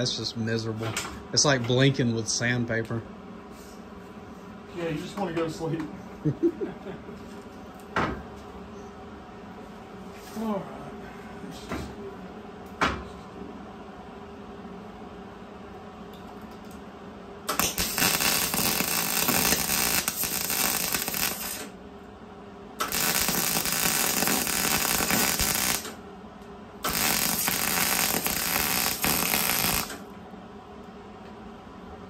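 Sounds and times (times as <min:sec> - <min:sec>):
arc welding sizzling crackle: 0:17.5 - 0:21.8, 0:22.8 - 0:26.0, 0:26.8 - 0:30.1.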